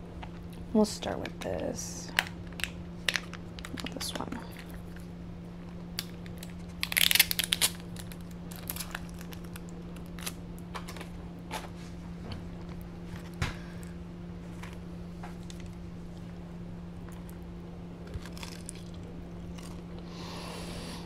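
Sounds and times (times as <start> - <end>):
low electrical hum: 0.0 - 21.0
fried chicken crunching: 5.9 - 11.1, 18.0 - 20.0.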